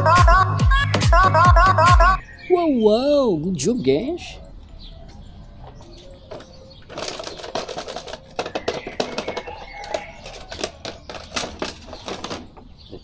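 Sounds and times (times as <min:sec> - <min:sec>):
plastic packaging crinkling and clicking: 0:06.3 - 0:12.6.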